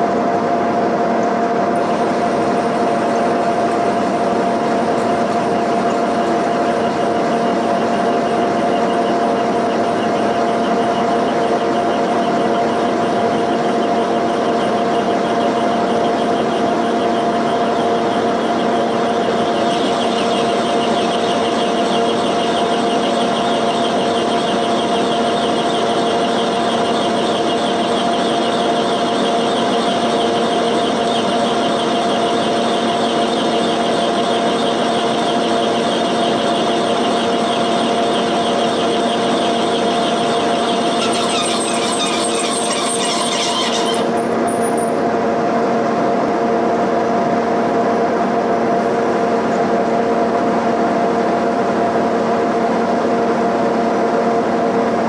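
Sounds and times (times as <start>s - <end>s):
milling cutter cutting metal: 1.7s - 45.0s
high-pitched ring: 33.8s - 44.8s.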